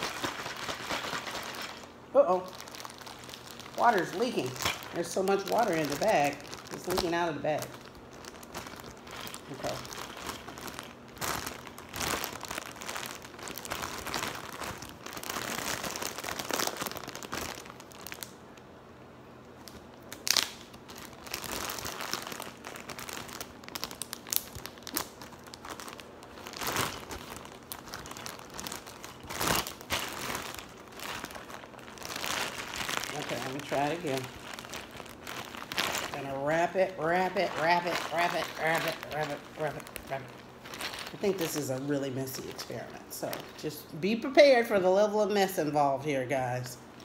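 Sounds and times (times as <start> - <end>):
plastic bag crinkling: 0.0 - 18.6, 19.5 - 47.0
cloth towel rustling: 26.5 - 43.7.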